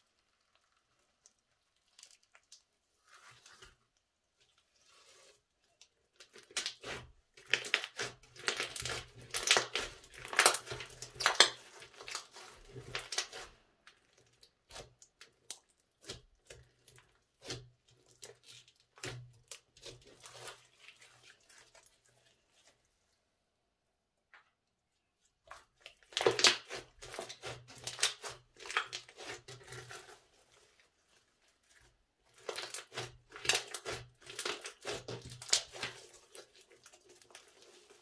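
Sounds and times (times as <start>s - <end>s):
slime crackling and popping: 6.2s - 20.5s, 26.0s - 30.1s, 32.3s - 37.9s.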